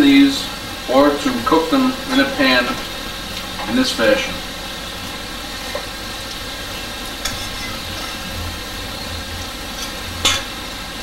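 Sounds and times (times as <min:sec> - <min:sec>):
dumplings sizzling in a pan: 0:00.0 - 0:11.0
cookware clattering: 0:07.2 - 0:08.3, 0:09.7 - 0:10.6.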